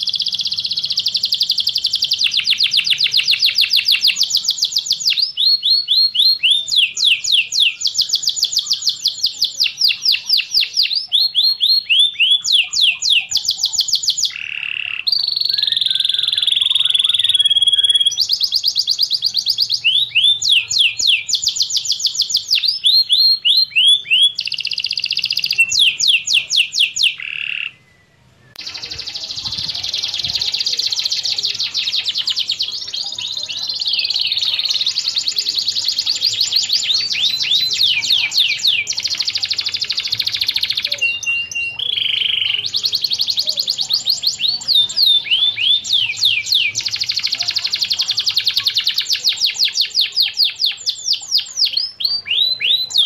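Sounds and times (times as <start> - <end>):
canary singing trills: 0.0 - 53.0.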